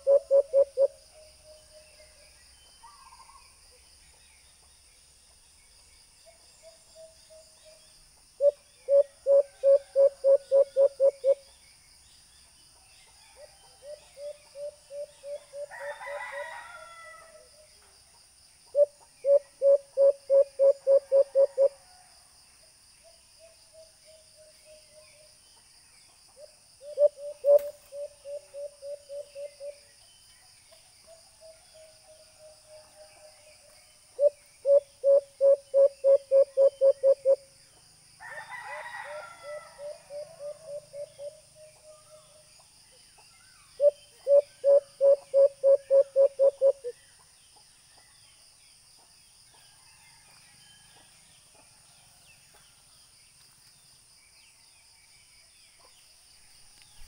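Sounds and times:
recorded dove hooting calls: 0:00.0 - 0:01.6, 0:08.4 - 0:11.4, 0:13.4 - 0:16.5, 0:18.7 - 0:21.8, 0:26.8 - 0:29.8, 0:34.2 - 0:37.4, 0:38.7 - 0:42.1, 0:43.8 - 0:46.9.

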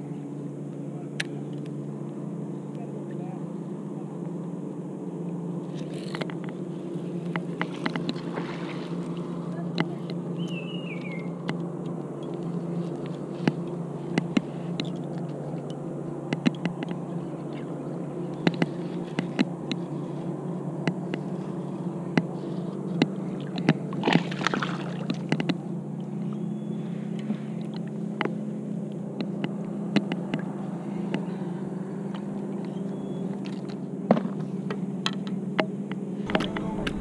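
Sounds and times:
steady low hum: 0:00.0 - 0:37.0
rushing splash-like noise: 0:24.0 - 0:25.2.

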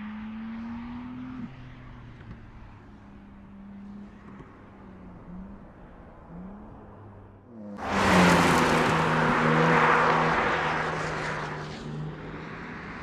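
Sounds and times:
car engine driving by: 0:04.0 - 0:13.0.

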